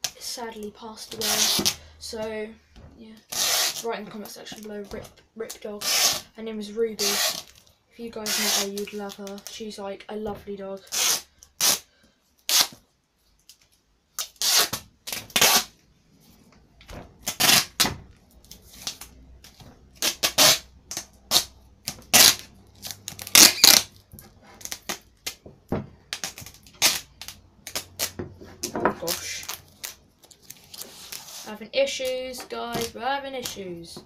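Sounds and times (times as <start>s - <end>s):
duct tape ripping: 1.1s - 1.8s, 3.2s - 3.9s, 4.6s - 6.3s, 7.0s - 9.6s, 10.8s - 12.8s, 13.4s - 15.8s, 17.1s - 25.5s, 26.1s - 28.2s, 29.0s - 33.6s.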